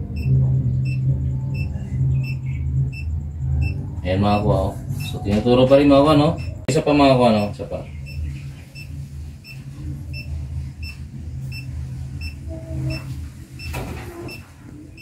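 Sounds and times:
steady low rumble: 0.0 - 15.0
short high electronic beeps: 0.2 - 5.2.

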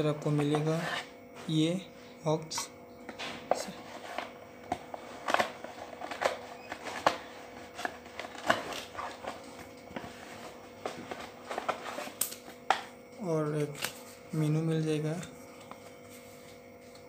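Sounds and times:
faint steady hum: 0.0 - 17.0
cardboard and paper rustling: 3.2 - 12.8.

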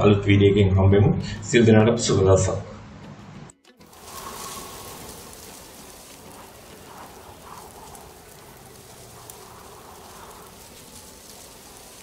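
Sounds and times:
rain-like patter and hiss: 3.8 - 12.0.

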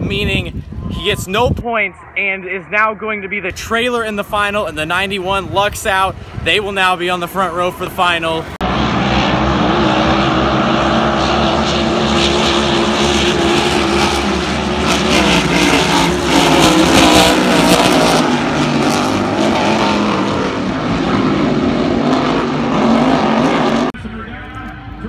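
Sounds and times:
racing boat engines droning: 7.1 - 25.0.

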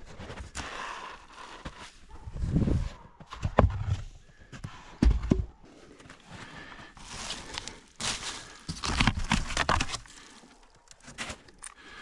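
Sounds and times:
rustling and scuffing in snow: 7.0 - 8.9.

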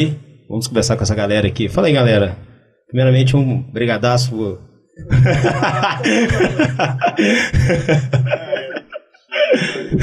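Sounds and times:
men laughing: 5.0 - 10.0.

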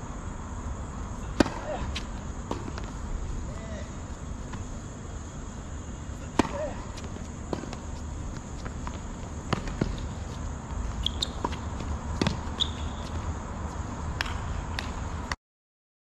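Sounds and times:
low steady hum: 0.0 - 15.4
racket hitting tennis ball: 1.2 - 3.0, 6.2 - 13.3
ball bouncing on hard court: 1.4 - 2.9, 6.3 - 10.4, 11.0 - 13.2
footsteps: 6.3 - 15.0
shoe squeaks: 9.9 - 13.4.

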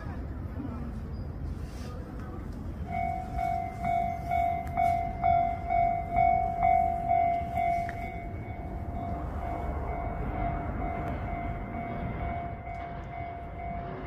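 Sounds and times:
level crossing warning bell: 2.2 - 14.0
low rumble: 3.0 - 14.0.

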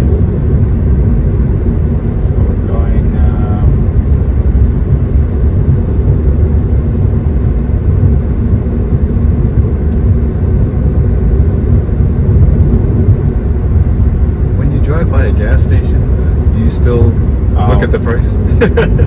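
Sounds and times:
road and tyre rumble: 0.0 - 19.0.

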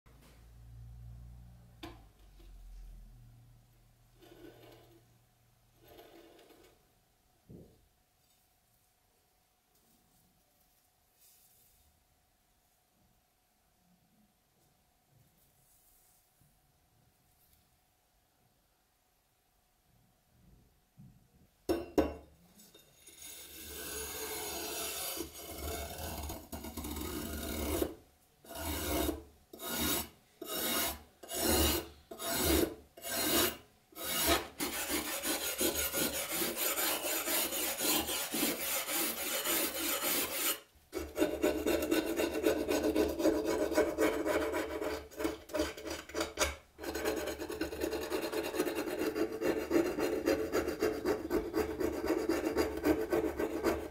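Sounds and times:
metal scraper scraping rust: 22.9 - 53.9
brush scrubbing rust off metal: 30.5 - 45.7.

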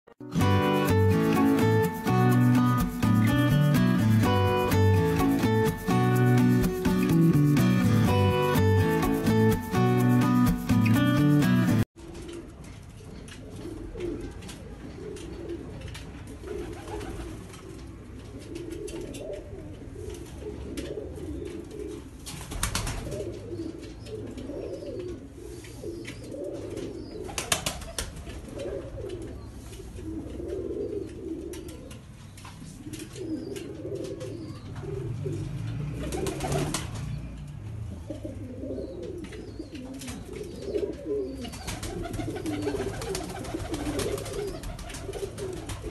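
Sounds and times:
pigeons cooing: 12.0 - 36.9, 37.9 - 45.9.

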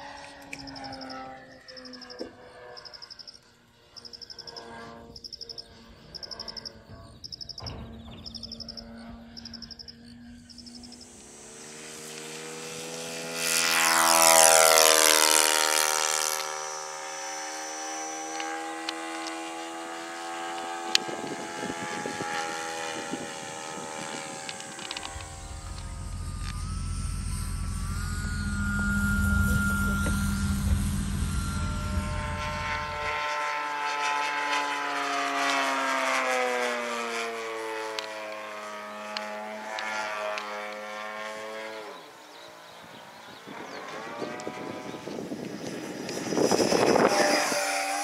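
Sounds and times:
model plane engine buzzing: 0.0 - 7.0, 8.3 - 48.0
insects chirping: 0.0 - 14.8, 16.7 - 33.2.

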